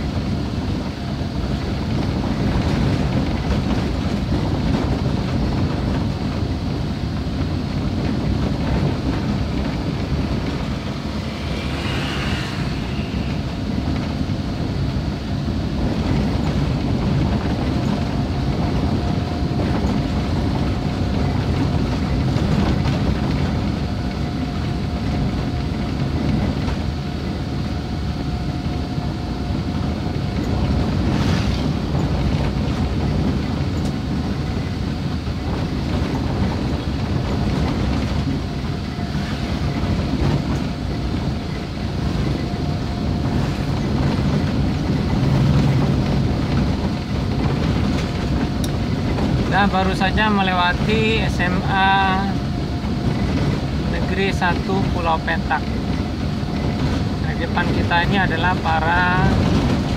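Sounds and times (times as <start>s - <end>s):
car engine and road noise: 0.0s - 59.9s
faint whine: 9.2s - 15.4s.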